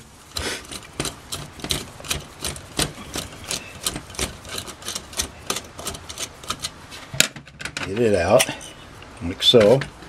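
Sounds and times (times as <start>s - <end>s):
screwdriver clicking and scraping metal: 0.0s - 6.8s.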